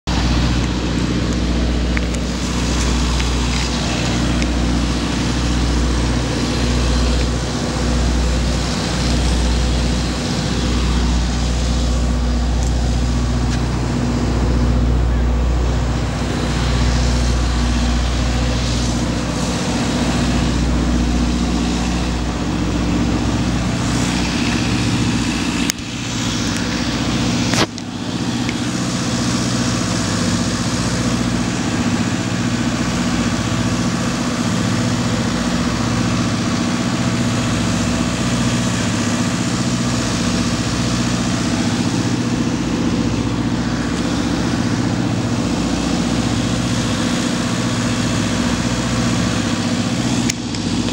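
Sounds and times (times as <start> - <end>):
heavy engines idling: 0.0 - 50.9.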